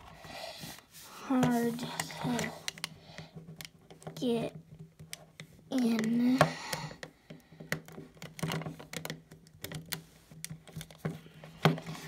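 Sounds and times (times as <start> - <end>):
plastic toy parts clicking: 1.4 - 12.0.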